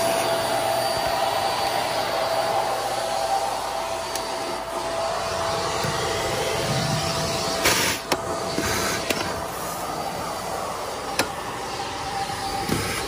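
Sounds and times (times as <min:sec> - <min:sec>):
vacuum cleaner hissing: 0:00.0 - 0:13.0.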